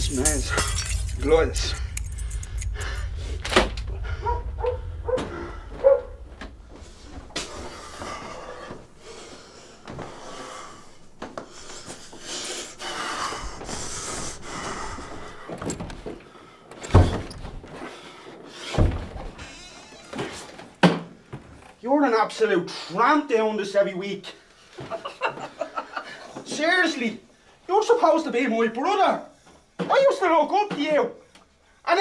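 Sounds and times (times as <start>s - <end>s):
man breathing heavily: 1.7s - 17.1s.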